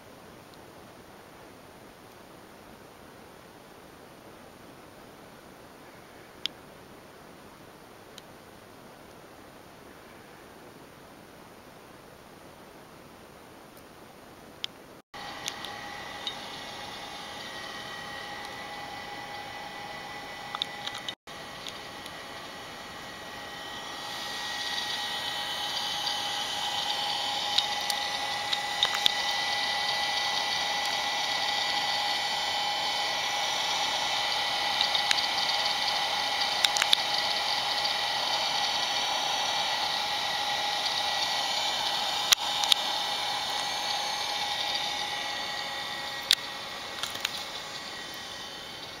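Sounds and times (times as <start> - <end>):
computer whirring hiss: 0.0 - 49.0
faint high whine tones: 0.0 - 49.0
sharp light clicks: 27.5 - 29.2, 36.4 - 37.1.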